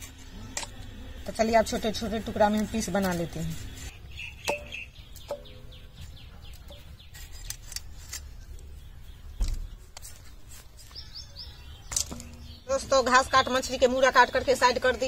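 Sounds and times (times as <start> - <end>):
bird chirping: 3.5 - 15.0.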